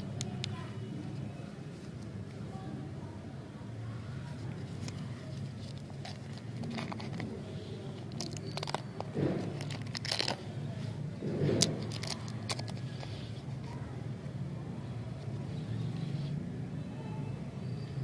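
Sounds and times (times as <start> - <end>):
candy wrapper crinkling: 4.4 - 10.5, 11.5 - 13.8.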